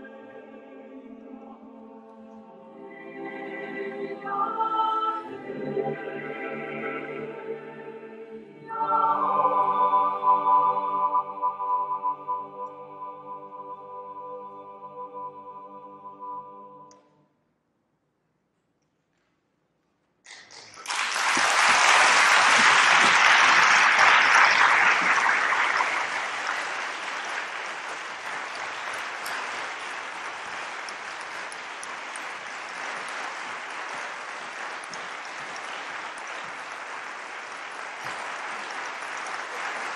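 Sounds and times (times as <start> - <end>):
audience applause: 20.3 - 39.9.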